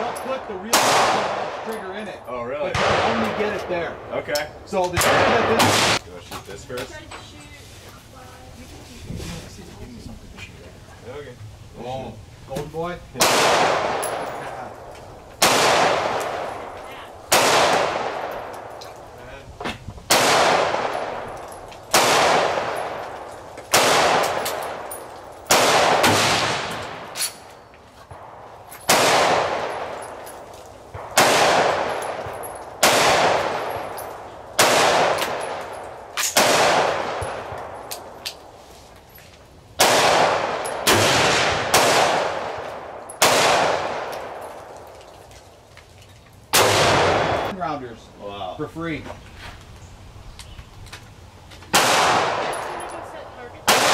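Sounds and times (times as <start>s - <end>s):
rifle shots echoing: 0.0s - 6.0s, 13.2s - 19.1s, 20.1s - 27.5s, 28.2s - 38.2s, 39.8s - 44.8s, 46.5s - 47.5s, 51.7s - 53.9s.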